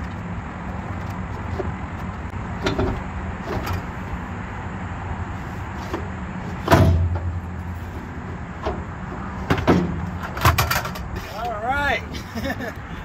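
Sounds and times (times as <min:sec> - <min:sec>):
loud metal clank: 0:06.6 - 0:07.4
tools clattering in metal toolbox: 0:10.2 - 0:11.4.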